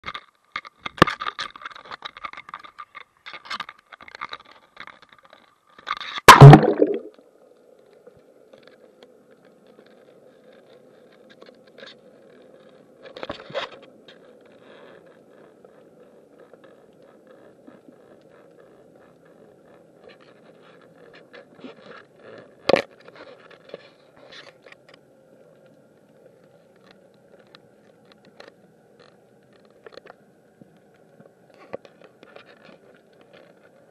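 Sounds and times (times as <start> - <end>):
loud splash: 6.3 - 7.1
sharp knocks underwater: 6.3 - 7.1.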